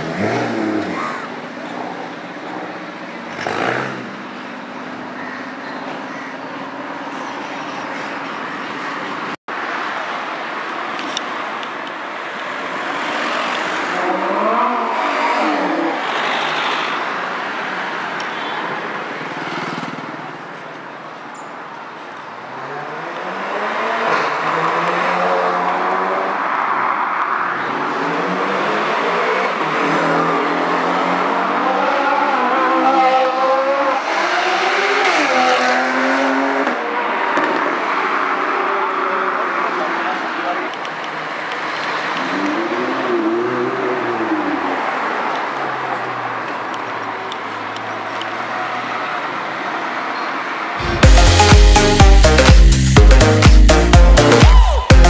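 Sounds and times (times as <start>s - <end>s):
sports car engines accelerating: 0.0s - 4.5s, 27.6s - 39.9s
traffic noise: 0.0s - 55.0s.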